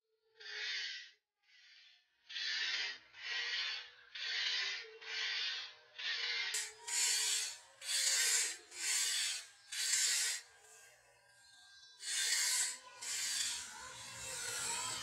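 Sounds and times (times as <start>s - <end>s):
sandpaper scraping rusty metal: 3.2s - 10.5s, 12.0s - 15.0s.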